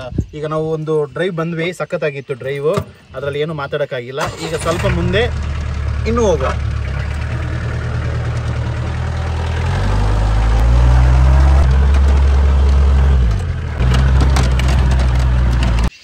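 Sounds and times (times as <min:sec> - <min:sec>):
jeep engine running: 0:04.2 - 0:16.0.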